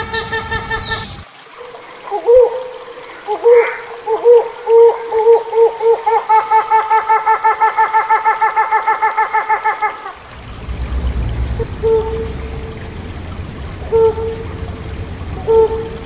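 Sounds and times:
hornbill calls: 0.0s - 1.2s, 8.8s - 16.0s.

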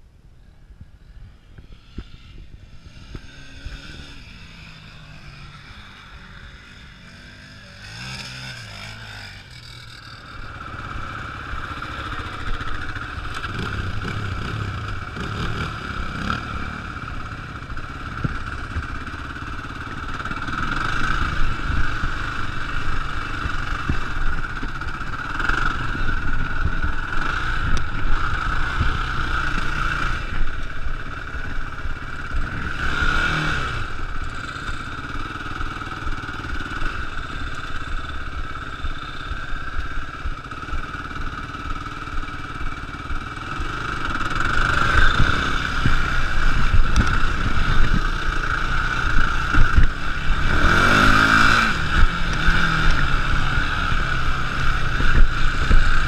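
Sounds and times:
quad engine revving: 1.6s - 56.0s
wind rumble on microphone: 44.8s - 56.0s.

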